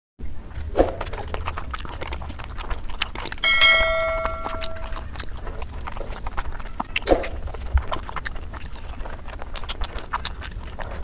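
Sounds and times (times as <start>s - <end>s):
chewing and wet mouth clicks: 0.6s - 11.0s
notification ding: 3.4s - 5.0s.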